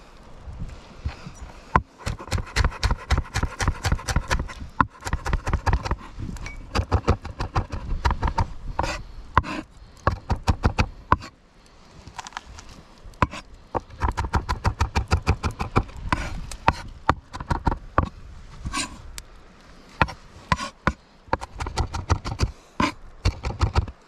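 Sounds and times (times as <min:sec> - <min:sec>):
knife chopping on wooden board: 0:02.0 - 0:06.0.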